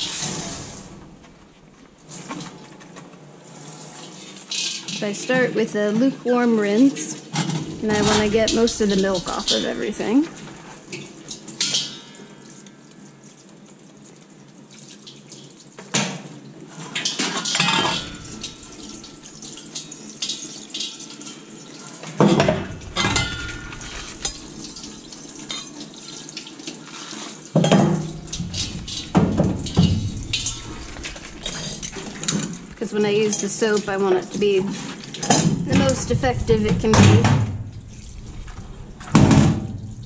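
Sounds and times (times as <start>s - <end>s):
water spraying into metal sink: 0.0s - 2.6s, 3.4s - 12.2s, 16.7s - 40.0s
metal parts clanking against sink: 7.3s - 12.2s, 16.9s - 21.4s, 22.0s - 25.9s, 27.6s - 39.9s.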